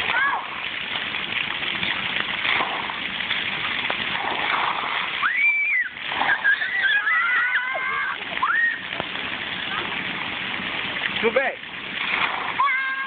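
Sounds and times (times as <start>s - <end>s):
water jets spraying: 0.0s - 13.0s
child squealing: 5.2s - 8.9s, 12.6s - 13.0s.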